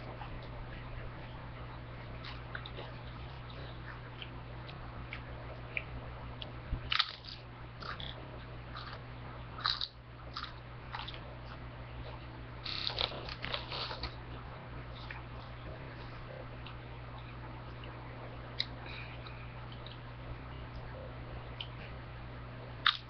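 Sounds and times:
chips crunching: 6.9s - 9.0s, 9.6s - 11.2s.

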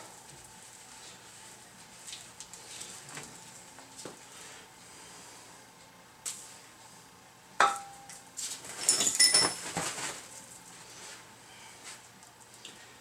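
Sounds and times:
metal parts clinking: 8.8s - 9.6s.

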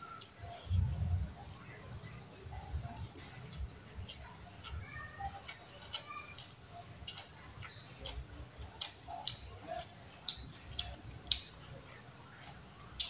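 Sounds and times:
person chewing with wet smacks: 0.1s - 0.9s, 2.0s - 13.0s
sharp mouth clicks: 8.8s - 11.6s.

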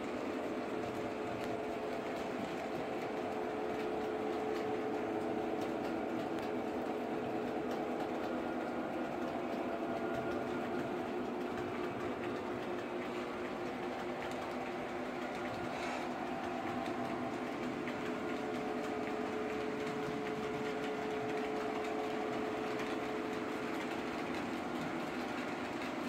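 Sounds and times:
wheels ticking over track: 0.0s - 26.0s
model train motors whirring: 9.9s - 26.0s.

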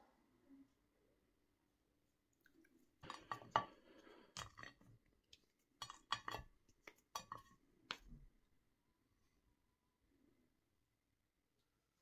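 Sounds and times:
sticks tapping a ceramic plate: 3.0s - 8.1s.

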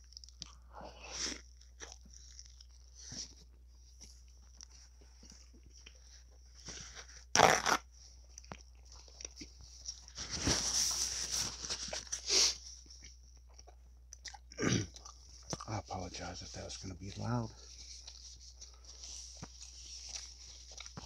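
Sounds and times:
quiet chewing: 0.0s - 7.3s, 8.0s - 10.4s, 11.0s - 21.0s
paper napkin rubbing face: 10.1s - 12.6s.

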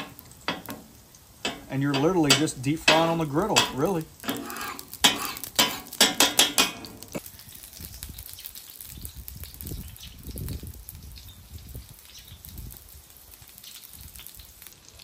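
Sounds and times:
metal spatula scraping griddle: 0.0s - 7.2s
oil sizzling: 0.0s - 15.0s.

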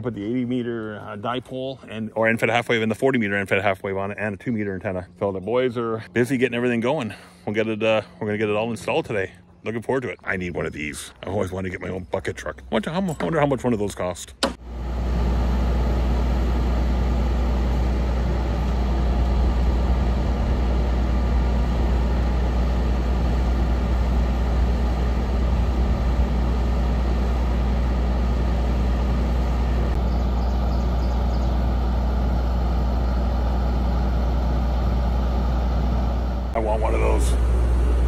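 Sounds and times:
truck engine running: 14.6s - 38.0s.

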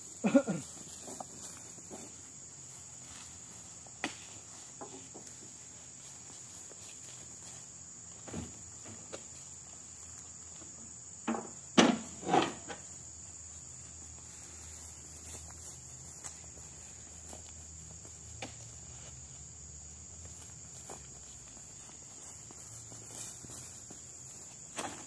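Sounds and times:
crickets droning: 0.0s - 25.0s
fruit bunches thudding onto trailer: 11.2s - 12.8s.

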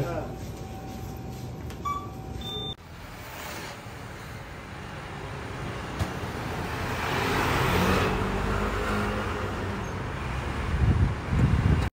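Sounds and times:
street traffic: 0.0s - 11.9s
vehicle passing close by: 2.8s - 11.8s.

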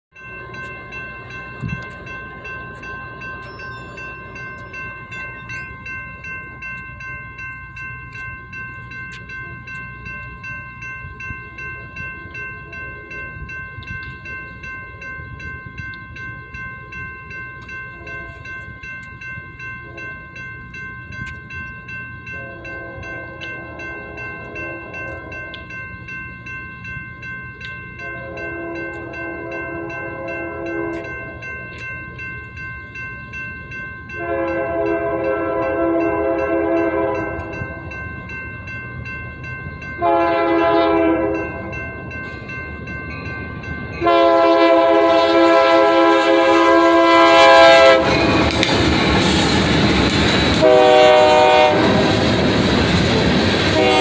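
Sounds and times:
crossing bell ringing: 0.1s - 54.0s
locomotive air horn: 22.4s - 25.0s, 34.2s - 37.5s, 40.0s - 41.4s, 44.0s - 48.3s, 50.6s - 52.2s, 53.7s - 54.0s.

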